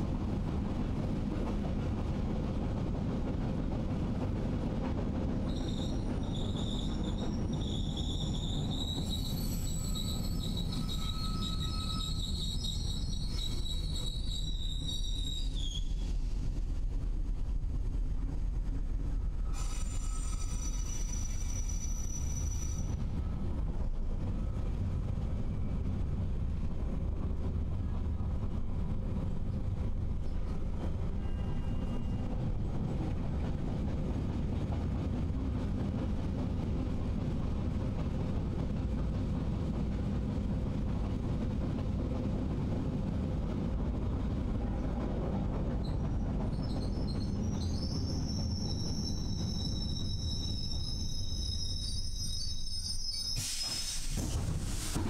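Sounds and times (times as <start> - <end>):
train rumbling: 0.0 - 55.0
train wheels squealing: 5.4 - 16.7, 19.1 - 23.5, 30.1 - 34.7, 44.3 - 55.0.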